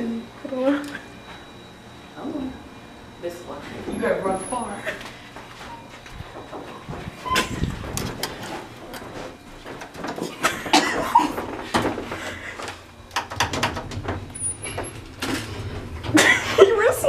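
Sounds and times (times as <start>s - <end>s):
elevator sliding doors: 3.5s - 5.0s, 5.6s - 17.0s
quick footsteps: 5.3s - 12.8s
knocks and clicks: 13.1s - 15.5s.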